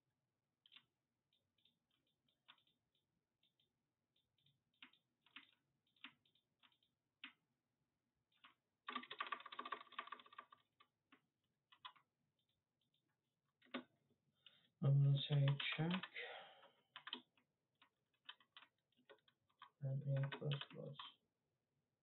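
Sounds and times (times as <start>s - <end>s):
keyboard keystrokes: 8.4s - 10.6s, 17.0s - 17.2s, 18.3s - 20.8s.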